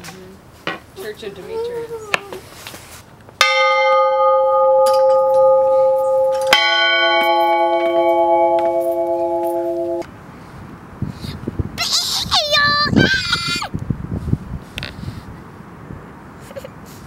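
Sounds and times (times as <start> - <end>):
church bell ringing: 3.4 - 10.0
lower-pitched church bell: 3.4 - 10.0.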